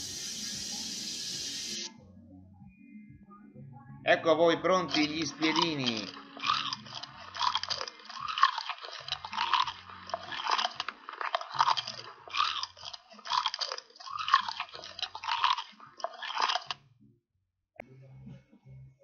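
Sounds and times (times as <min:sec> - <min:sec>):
crunchy chewing: 0:04.9 - 0:16.8.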